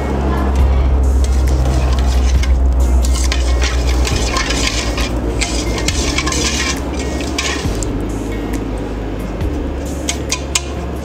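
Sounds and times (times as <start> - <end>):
metal spatula scraping a pan: 1.2 - 7.9, 10.1 - 10.8.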